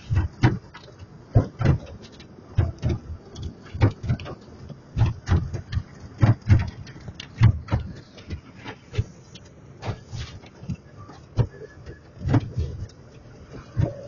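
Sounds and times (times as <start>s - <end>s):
car wash brushes slapping car: 0.0s - 14.0s.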